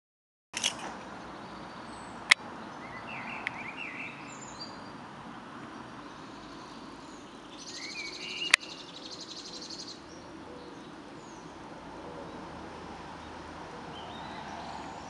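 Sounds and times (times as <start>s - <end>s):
sharp clicks: 0.6s - 1.0s
steady outdoor hiss: 0.6s - 15.0s
birds chirping: 0.7s - 15.0s.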